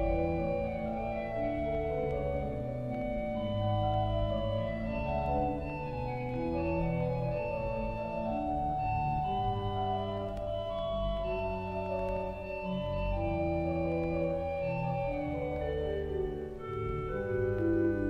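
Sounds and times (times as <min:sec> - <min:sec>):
pipe organ playing slow piece: 0:00.0 - 0:18.0.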